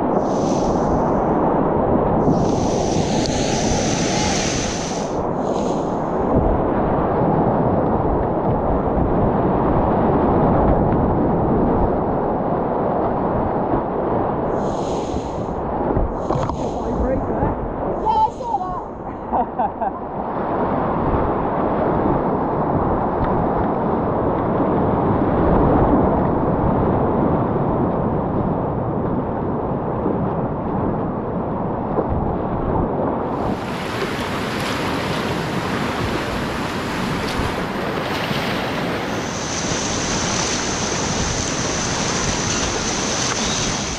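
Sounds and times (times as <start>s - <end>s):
rapids roaring: 0.0s - 8.2s, 14.5s - 20.3s, 33.3s - 43.9s.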